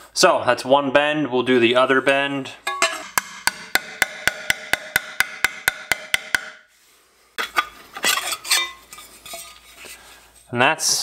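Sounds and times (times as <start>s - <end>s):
metal clanks and scraping: 2.6s - 6.6s, 7.4s - 10.5s
hammer striking sheet steel: 2.7s - 6.7s.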